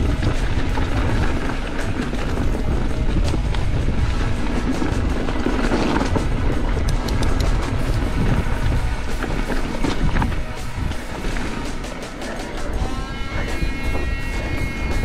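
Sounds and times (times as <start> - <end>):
background music: 0.0 - 15.0
mountain bike rattling on trail: 0.0 - 15.0
wind buffeting microphone: 0.0 - 15.0
sharp clicks: 6.8 - 7.7.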